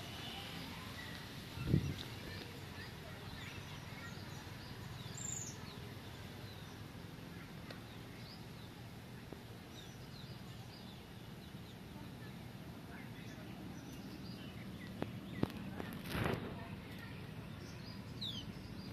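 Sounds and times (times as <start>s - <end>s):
bird chirps: 0.0s - 6.9s
low background noise: 0.0s - 18.9s.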